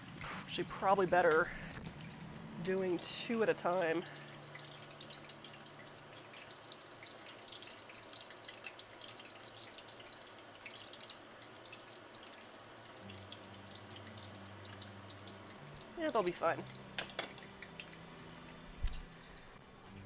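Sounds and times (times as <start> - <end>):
oil crackling and bubbling: 0.0 - 20.0
low hum: 13.1 - 20.0.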